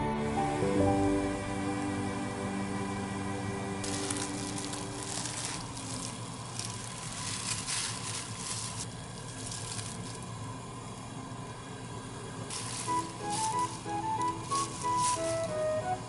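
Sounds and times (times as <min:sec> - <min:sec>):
water splashing: 0:03.8 - 0:10.4
plastic bag rustling: 0:03.8 - 0:10.7, 0:12.4 - 0:16.0
water boiling in a pot: 0:03.8 - 0:16.0.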